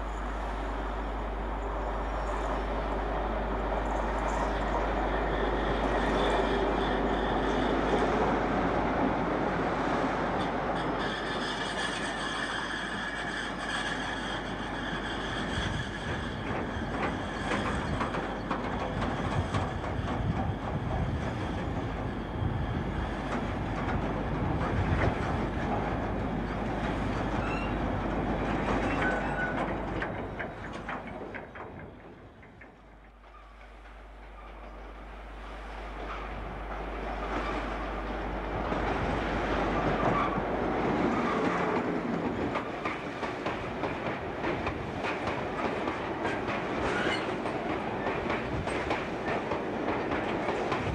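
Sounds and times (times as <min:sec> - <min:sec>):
approaching diesel locomotive: 0:00.0 - 0:50.9
freight wagons clickety-clack: 0:15.7 - 0:21.2, 0:23.3 - 0:34.8, 0:39.8 - 0:50.9.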